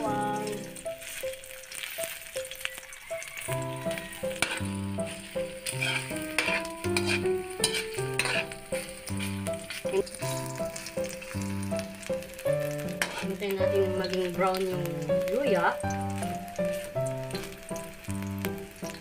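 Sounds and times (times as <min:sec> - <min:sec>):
ginger sizzling in oil: 0:00.0 - 0:19.0
metal spoon scraping pan: 0:04.3 - 0:10.4, 0:12.9 - 0:13.5.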